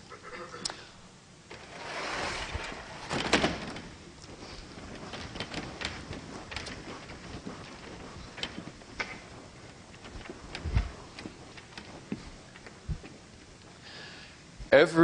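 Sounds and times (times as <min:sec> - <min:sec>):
scrape on chalkboard: 0:01.6 - 0:02.9.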